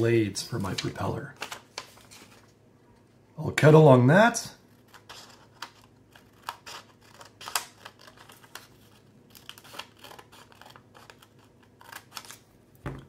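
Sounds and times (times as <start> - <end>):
scissors snipping paper: 4.9 - 8.6, 9.3 - 12.4.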